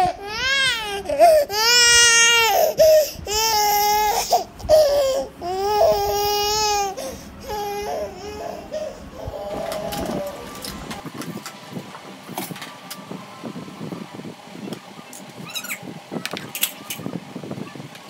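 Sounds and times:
baby crying: 0:00.0 - 0:10.6.

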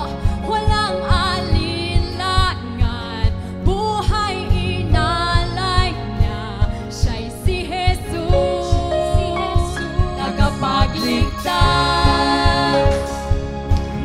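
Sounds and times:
person singing: 0:07.0 - 0:14.0.

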